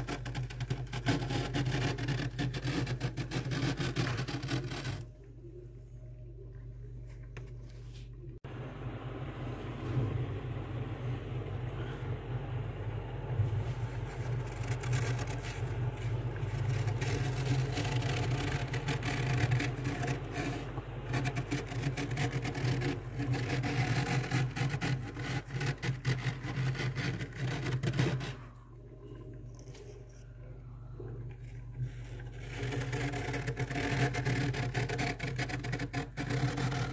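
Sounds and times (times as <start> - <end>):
fingers scraping frost: 0.0 - 5.1, 13.4 - 28.6, 31.8 - 36.9
freezer low hum: 0.0 - 36.9.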